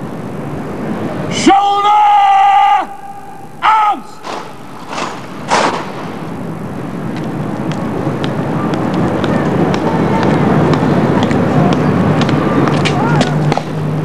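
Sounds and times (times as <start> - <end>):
background hiss: 0.0 - 9.6
shouted word of command: 1.3 - 4.2
crashing drill impacts: 4.2 - 6.4.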